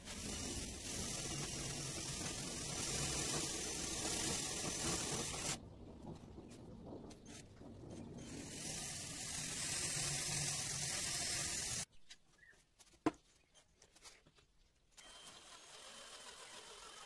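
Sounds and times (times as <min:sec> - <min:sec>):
drill bit grinding into steel: 0:00.0 - 0:05.6, 0:08.2 - 0:11.9
small power tool whirring: 0:00.0 - 0:05.6, 0:08.2 - 0:11.9, 0:15.0 - 0:17.0.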